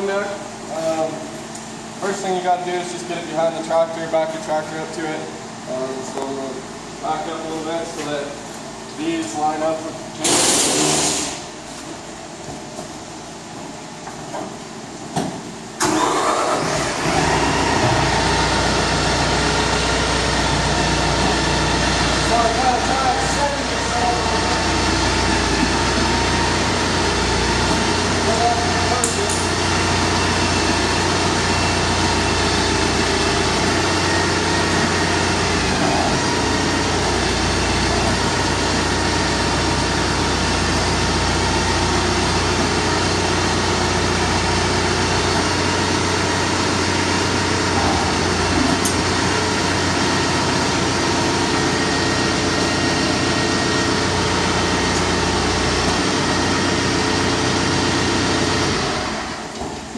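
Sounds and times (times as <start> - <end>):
tractor engine running: 15.8 - 59.6.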